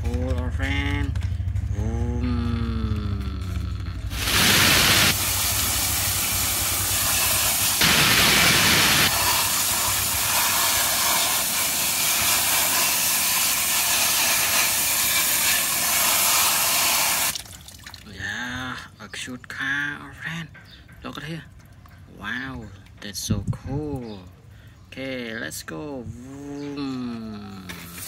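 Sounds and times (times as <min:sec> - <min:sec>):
hose spraying water on plastic: 0:04.1 - 0:17.8, 0:27.7 - 0:28.0.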